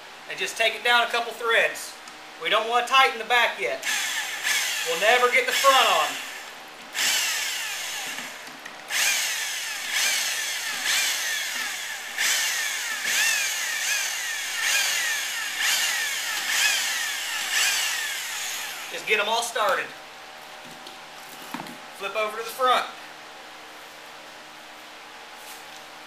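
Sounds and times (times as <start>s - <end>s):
electric drill bursts: 3.8s - 19.2s.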